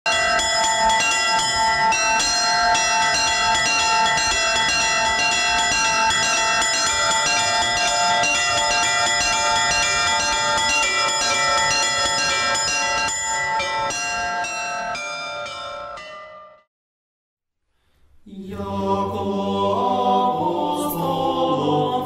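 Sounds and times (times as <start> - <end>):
deep bells humming: 0.1 - 16.4
small church bells ringing: 0.1 - 16.7.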